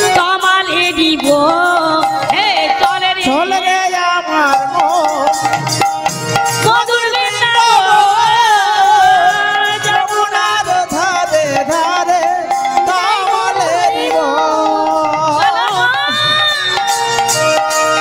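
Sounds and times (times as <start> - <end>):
percussion accompaniment: 0.0 - 18.0
person singing devotional song: 0.0 - 18.0.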